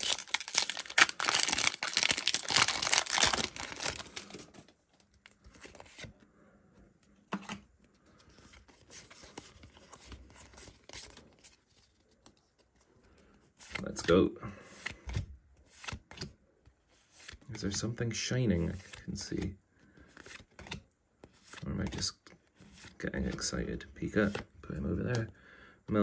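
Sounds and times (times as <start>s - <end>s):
foil wrapper tearing and crinkling: 0.0s - 4.5s
cards being handled: 0.0s - 6.2s, 7.0s - 17.8s, 18.5s - 25.3s.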